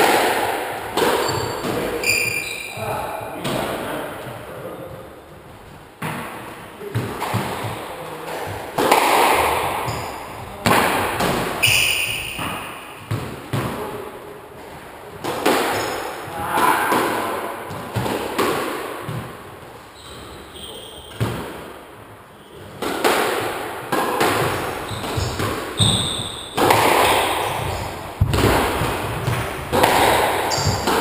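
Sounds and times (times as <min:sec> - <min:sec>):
trainers squeaking on wooden floor: 0:01.0 - 0:03.0, 0:11.5 - 0:13.1, 0:19.9 - 0:21.4, 0:24.4 - 0:28.1, 0:29.0 - 0:31.0
squash ball cracking off walls: 0:06.0 - 0:13.8, 0:15.2 - 0:19.4, 0:22.8 - 0:31.0.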